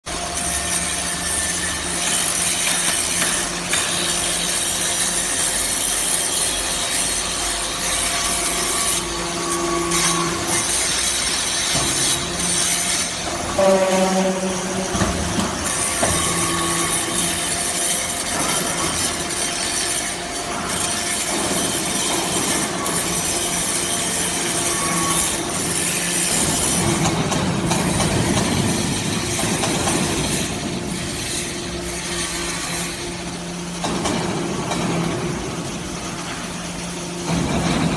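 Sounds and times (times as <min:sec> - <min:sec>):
hissing grinding machine noise: 0:00.1 - 0:37.9
metal turnings on conveyor: 0:00.1 - 0:37.9
metallic squeal: 0:12.4 - 0:18.0.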